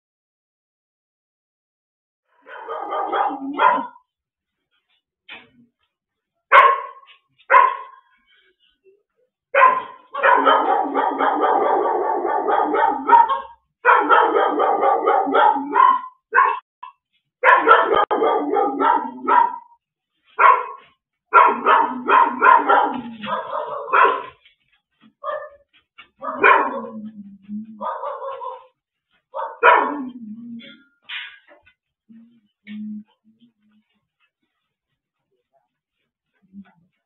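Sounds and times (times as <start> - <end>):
dog barking: 2.3 - 4.1, 6.5 - 8.2, 9.5 - 19.8, 20.4 - 24.4, 25.2 - 30.2
dog yelping: 2.5 - 4.0, 9.6 - 16.6, 17.4 - 19.8, 21.4 - 24.4, 26.2 - 28.7, 29.4 - 30.8.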